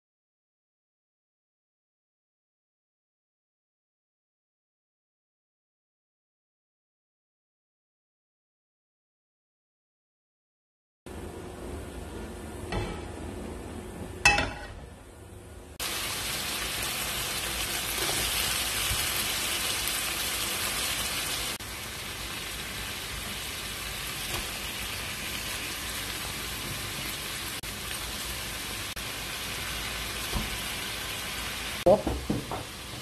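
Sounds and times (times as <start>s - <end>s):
bacon sizzling in a frying pan: 15.8s - 33.0s.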